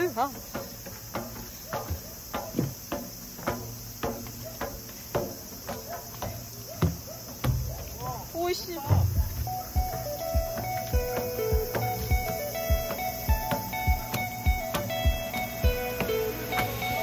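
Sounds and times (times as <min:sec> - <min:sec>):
footsteps on metal stairs: 0:00.0 - 0:17.0
insects chirring: 0:00.0 - 0:17.0.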